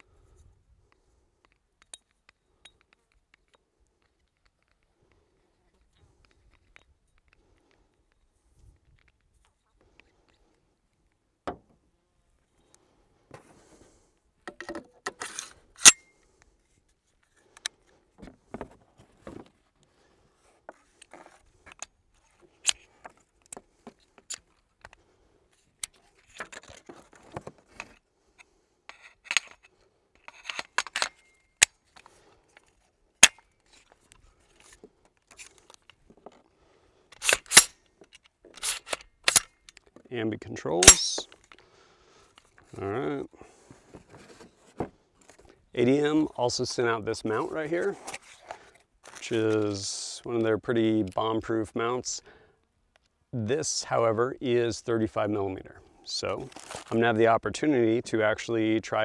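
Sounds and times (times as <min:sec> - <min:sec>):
rifle parts clicking together: 0:27.8 - 0:36.0, 0:37.1 - 0:40.0, 0:40.8 - 0:41.6.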